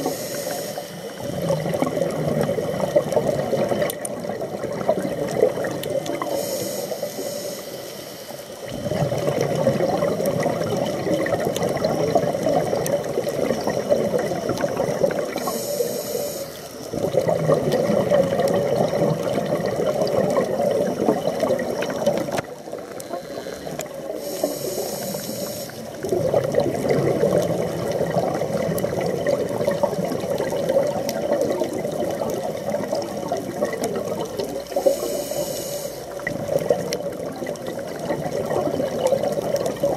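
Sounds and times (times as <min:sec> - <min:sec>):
regulator hissing inhale: 0:00.0 - 0:01.3, 0:06.2 - 0:08.7, 0:15.3 - 0:16.9, 0:23.0 - 0:26.0, 0:34.7 - 0:36.3
bubbling exhalation: 0:01.2 - 0:06.3, 0:08.6 - 0:15.6, 0:16.9 - 0:22.5, 0:26.0 - 0:35.1, 0:36.0 - 0:39.9.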